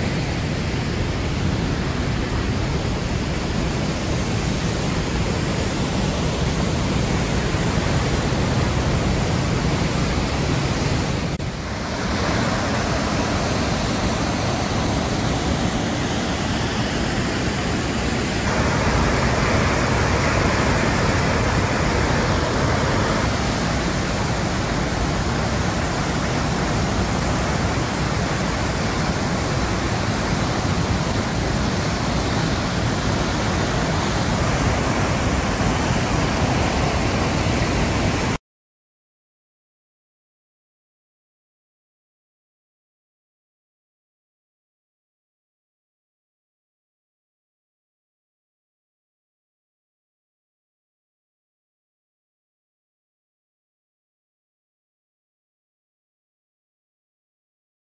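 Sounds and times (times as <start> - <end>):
waterfall roaring: 0.0 - 38.4.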